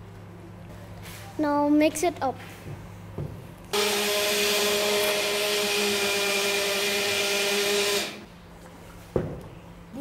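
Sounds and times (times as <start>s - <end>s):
electric blender motor whine: 3.7s - 8.3s.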